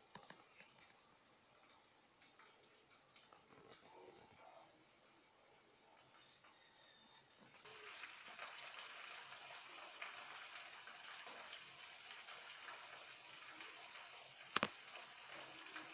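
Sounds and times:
oil sizzling in a frying pan: 0.9s - 15.9s.

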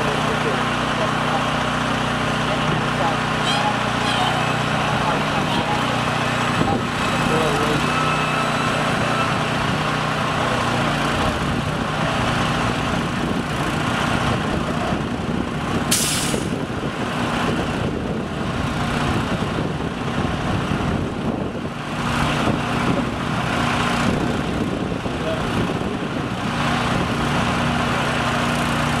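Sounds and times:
engine running steadily: 0.0s - 29.0s
short sharp hiss: 15.9s - 16.5s.

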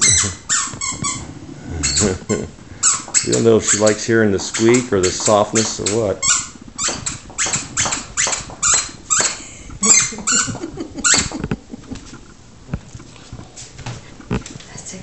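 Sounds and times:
squeaky toy squeaking: 0.0s - 1.2s, 1.8s - 2.2s, 2.8s - 11.3s
dog chewing toy: 0.0s - 11.5s.

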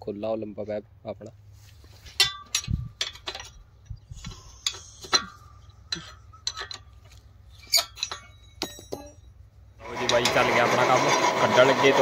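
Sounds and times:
metal spanners clinking on bolt: 2.2s - 9.4s.

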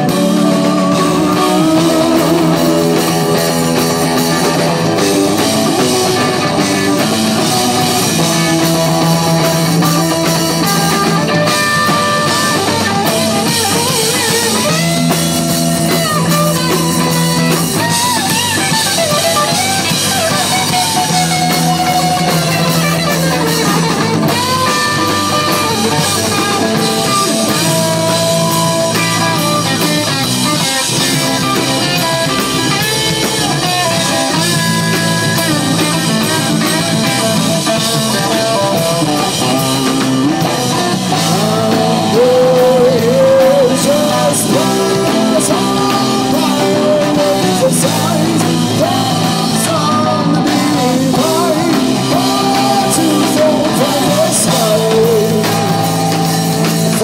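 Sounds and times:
drum kit: 0.0s - 57.0s
electric guitar: 0.0s - 57.0s
man singing: 0.0s - 57.0s.

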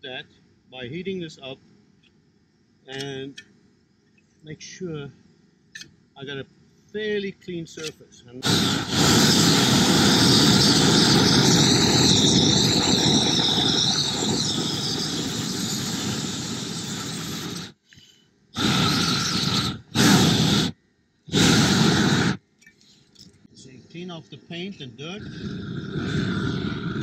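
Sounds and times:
propane torch hissing: 8.4s - 22.4s, 25.0s - 27.0s.

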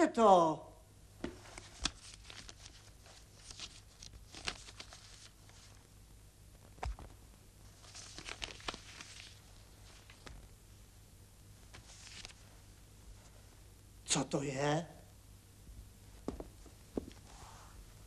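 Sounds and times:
paper wrapping rustling: 1.4s - 5.8s, 7.7s - 10.4s, 11.7s - 12.5s
soft knock: 16.2s - 17.1s.

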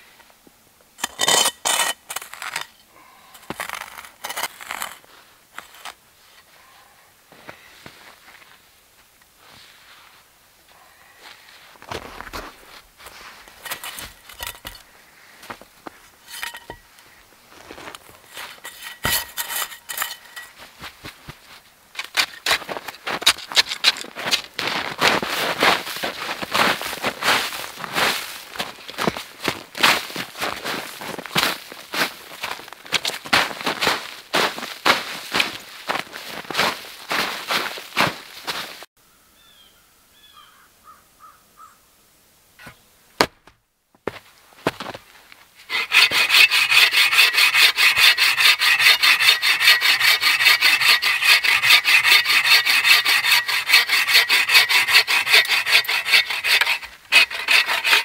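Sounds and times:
snow scooped with metal pot: 1.0s - 6.0s, 12.2s - 21.3s
snow crunching: 2.2s - 8.8s, 9.4s - 10.3s, 11.2s - 38.9s, 44.1s - 46.0s
pot clinking and scraping: 13.6s - 14.8s, 16.2s - 16.8s, 18.2s - 20.7s
bird calls: 39.1s - 41.8s.

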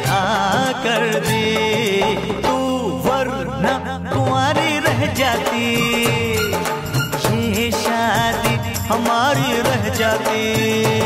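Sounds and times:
steady drum beat: 4.1s - 11.0s.

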